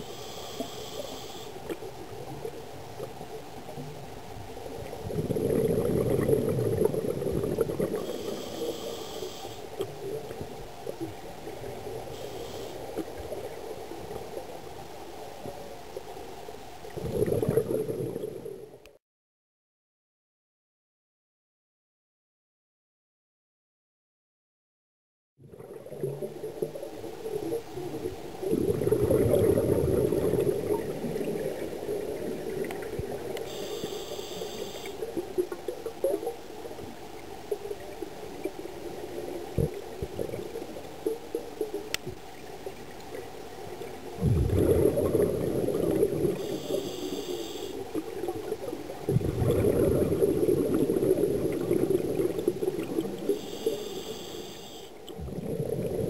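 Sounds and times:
hissing regulator breaths: 0.0s - 1.6s, 8.0s - 9.7s, 12.2s - 12.9s, 33.5s - 35.0s, 46.4s - 47.8s, 53.4s - 54.9s
bubbling exhaled air underwater: 4.8s - 13.6s, 16.9s - 18.7s, 25.4s - 36.4s, 43.8s - 56.0s.

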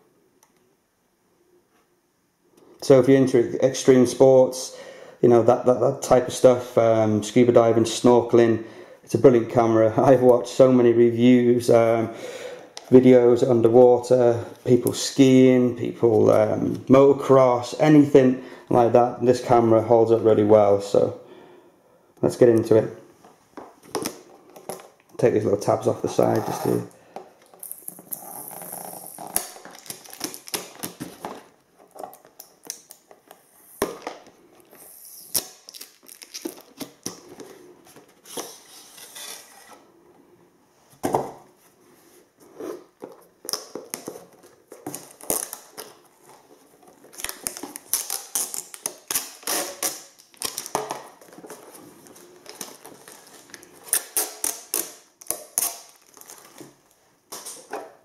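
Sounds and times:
tape peeling: 27.4s - 31.1s, 47.0s - 50.9s, 52.4s - 56.6s
plastic packaging rustling: 29.0s - 39.9s, 42.7s - 58.0s.

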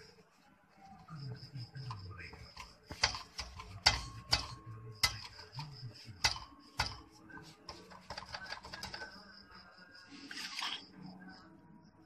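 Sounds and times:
sharp metallic clicks and knocks: 1.9s - 9.3s.

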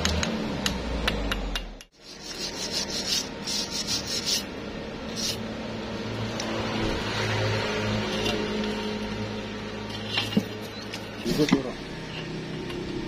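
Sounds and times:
wire brush scrubbing steel: 2.0s - 5.4s.

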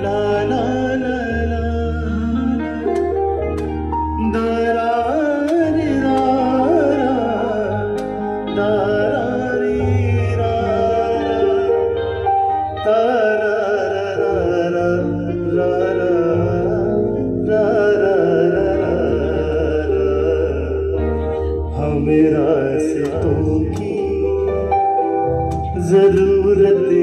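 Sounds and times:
lead melody line: 0.0s - 27.0s
live band playing film song: 0.0s - 27.0s.

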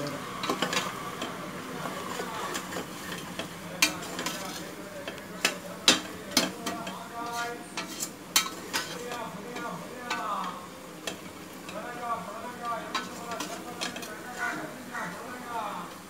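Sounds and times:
frying oil sizzling: 0.0s - 16.0s
metal ladle scraping pot: 0.4s - 11.3s, 12.8s - 14.7s.

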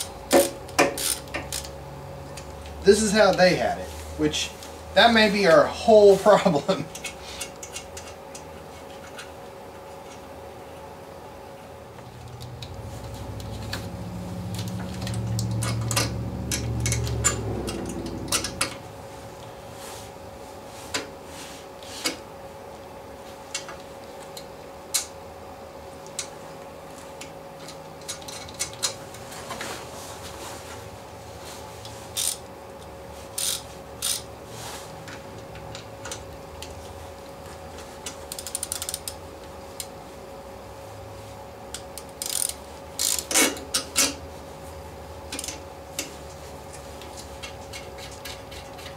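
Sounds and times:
low hum: 11.8s - 19.9s
metal clicks of hand tools: 14.6s - 18.8s.

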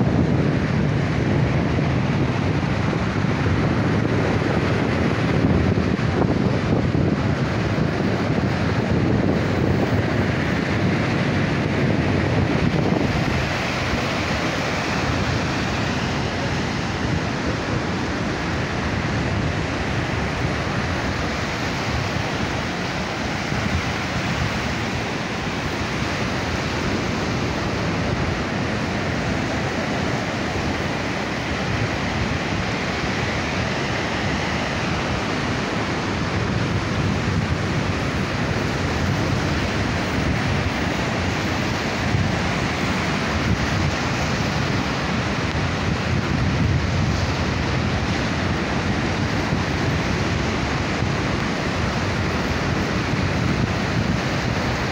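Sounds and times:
sea surf breaking: 0.0s - 54.9s
wind buffeting microphone: 0.0s - 54.9s.

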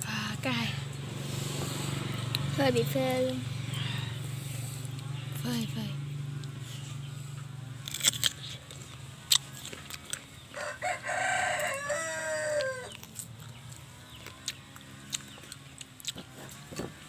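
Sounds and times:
rooster crowing: 10.5s - 13.0s.

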